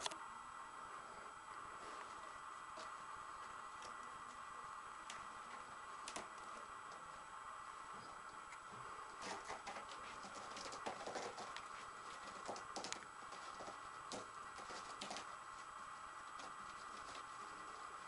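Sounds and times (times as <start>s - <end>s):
claws scratching on rope post: 9.2s - 15.4s.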